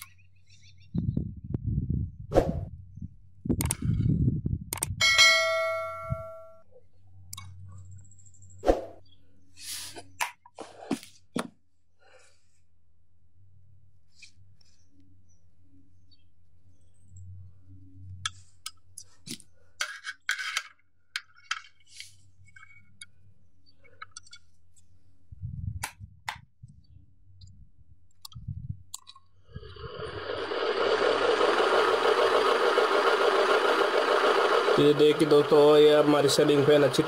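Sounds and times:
ceiling fan motor whirring: 29.5 - 37.0.

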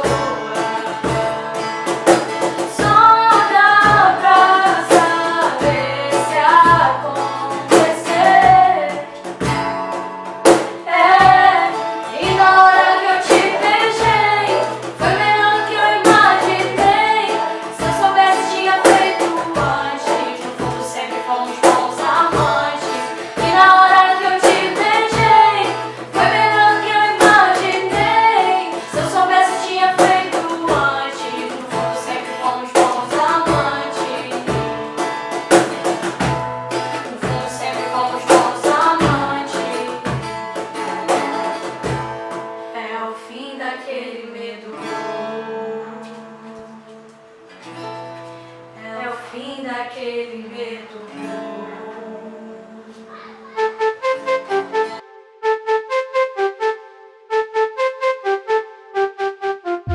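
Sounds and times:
two women singing: 0.0 - 1.9, 2.5 - 9.3, 10.8 - 34.9, 35.5 - 41.6, 42.7 - 47.2, 48.8 - 53.2
strummed acoustic guitar: 0.0 - 42.8, 44.3 - 55.0.

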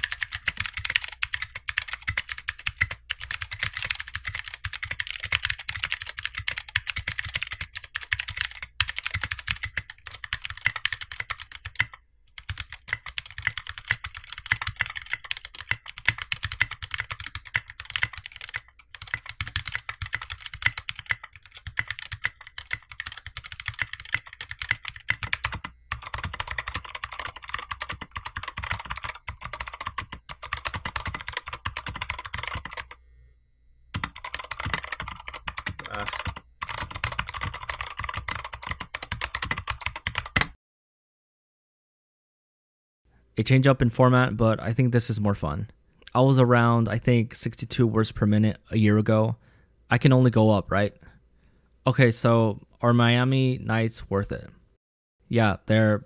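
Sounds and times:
fast typing on mechanical keyboard: 0.0 - 33.0, 34.0 - 40.6.

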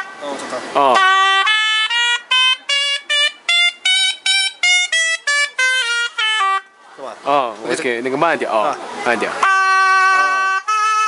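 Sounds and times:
shawm playing a scale: 0.0 - 7.1, 9.4 - 11.0.

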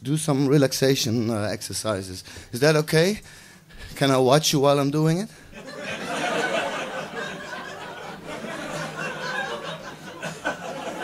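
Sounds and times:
audience laughing: 5.6 - 11.0.

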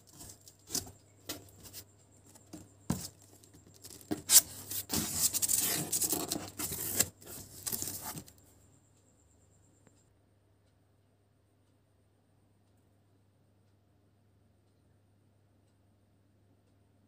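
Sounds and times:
taps and scrapes on cardboard flaps: 2.4 - 8.3
cardboard sliding and rustling: 3.9 - 8.3.

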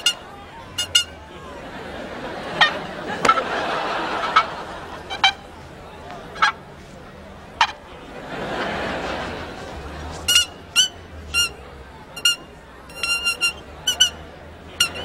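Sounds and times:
short high-pitched squeaks: 0.0 - 1.2, 10.1 - 15.0.

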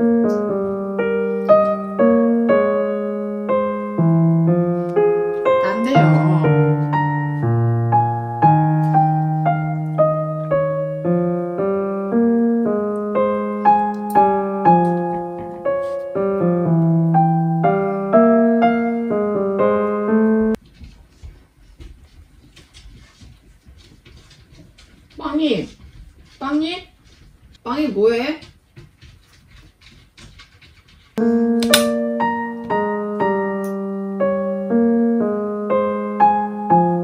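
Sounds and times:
piano music: 0.0 - 20.6, 31.2 - 37.0.

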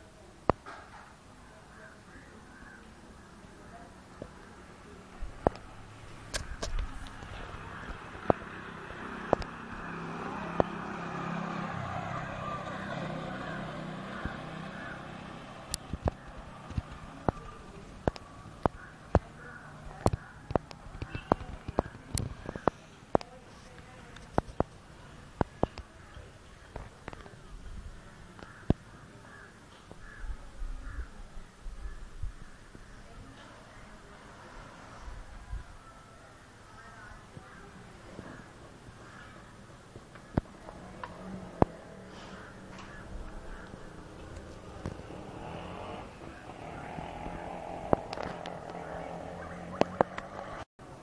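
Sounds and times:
crows cawing: 2.2 - 3.3, 12.1 - 16.3, 18.6 - 20.5, 28.4 - 33.0, 36.8 - 41.2, 42.1 - 48.4
motor vehicle passing: 4.2 - 29.4, 32.6 - 51.0.

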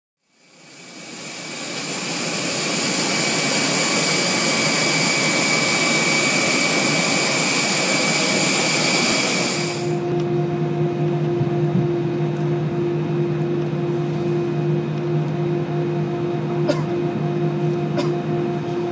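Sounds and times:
loud jet engine whine: 0.2 - 18.9
low steady engine hum: 9.8 - 18.9.

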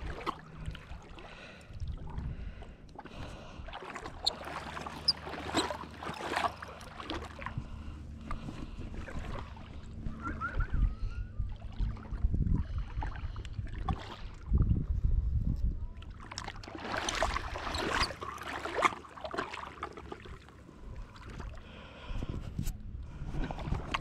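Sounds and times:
water sloshing and splashing: 0.0 - 10.8, 11.4 - 24.0
wind on microphone: 7.5 - 18.2, 20.8 - 24.0.

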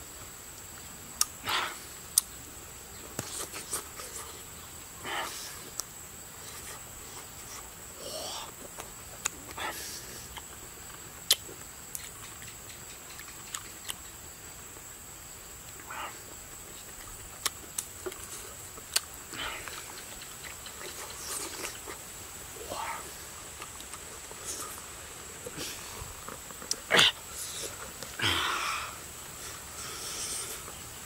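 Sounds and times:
chewing and sucking: 8.4 - 14.0, 15.7 - 22.1, 22.8 - 28.3.

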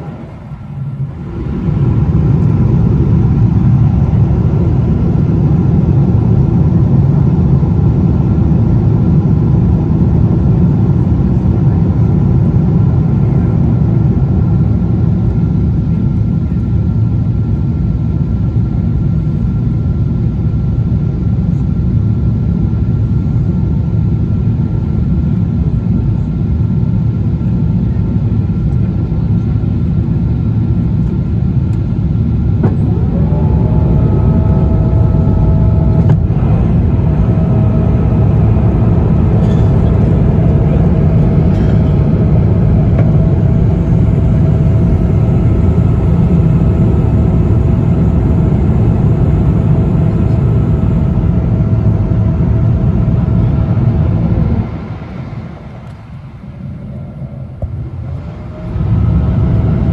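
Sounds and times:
airplane engines and airflow rumble: 0.0 - 59.9
faint steady whines: 0.0 - 59.9
rising whining tones: 32.6 - 59.5.

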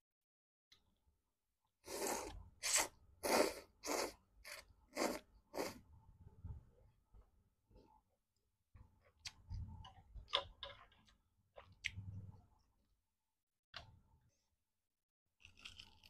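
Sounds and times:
noodles slurped noisily: 1.9 - 5.8.

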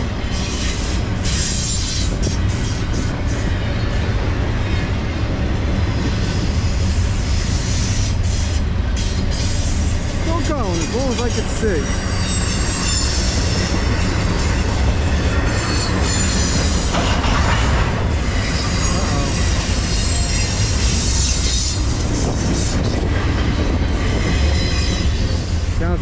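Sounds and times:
rumble of steel wheels on rail: 0.0 - 26.0
high-pitched wheel squeal: 11.3 - 17.0, 24.0 - 25.6.

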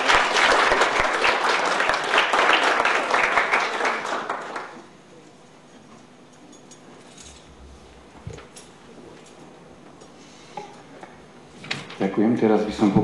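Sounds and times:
people applauding: 0.0 - 5.0.

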